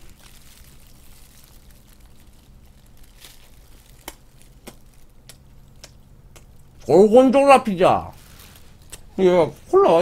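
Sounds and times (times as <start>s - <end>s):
faint chewing: 0.0s - 6.8s
low steady hum: 0.0s - 10.0s.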